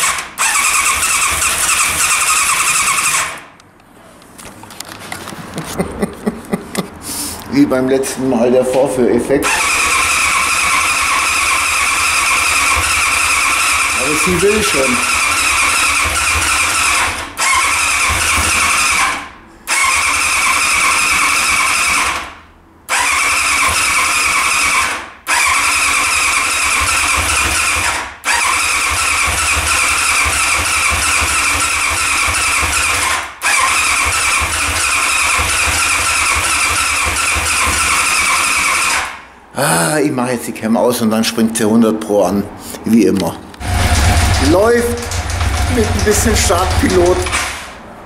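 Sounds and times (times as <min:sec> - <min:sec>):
motorcycle starter cranking engine: 0:00.0 - 0:03.5, 0:09.4 - 0:39.2, 0:43.6 - 0:47.8.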